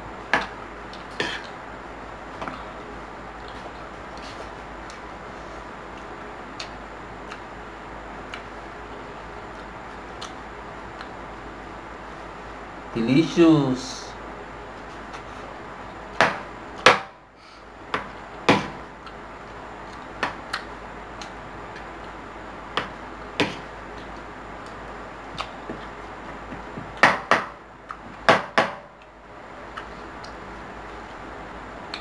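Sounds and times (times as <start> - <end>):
steady low hiss: 0.0 - 32.0.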